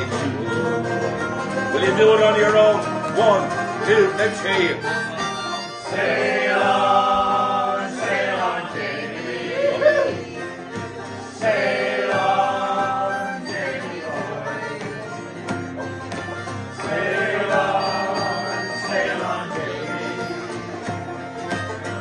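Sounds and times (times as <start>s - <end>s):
group singing: 0.0s - 1.4s, 5.8s - 22.0s
banjo: 0.0s - 22.0s
strummed acoustic guitar: 0.0s - 22.0s.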